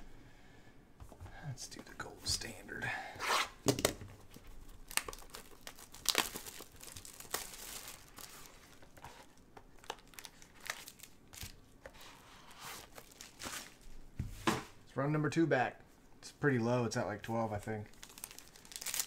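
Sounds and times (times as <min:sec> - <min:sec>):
wrapping crinkling and tearing: 0:04.3 - 0:11.7, 0:12.4 - 0:13.9, 0:17.9 - 0:19.0.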